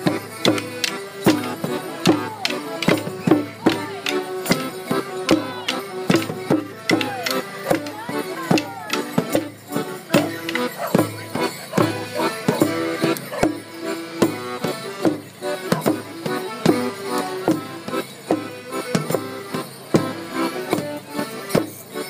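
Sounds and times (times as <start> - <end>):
folk band playing dance tune: 0.0 - 22.0.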